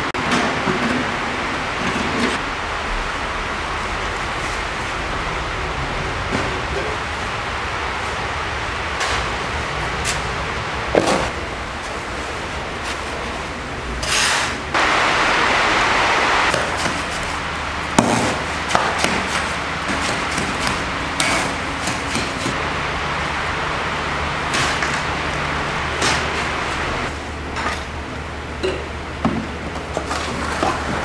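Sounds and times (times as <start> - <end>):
shovel scraping on concrete: 14.0 - 14.6
harsh rushing noise: 14.7 - 21.1, 22.4 - 27.1.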